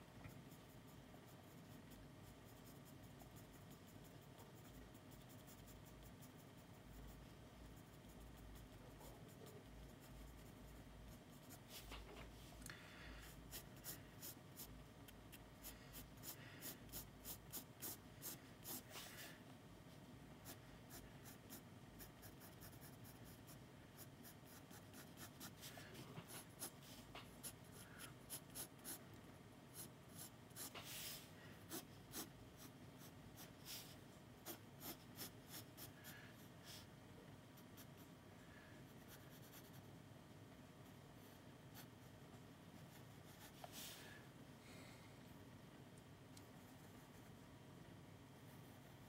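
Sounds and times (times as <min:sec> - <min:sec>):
pencil scratching on paper: 0:00.3 - 0:12.1, 0:13.3 - 0:14.7, 0:15.6 - 0:19.2, 0:20.4 - 0:29.0, 0:29.7 - 0:36.8, 0:39.0 - 0:39.9.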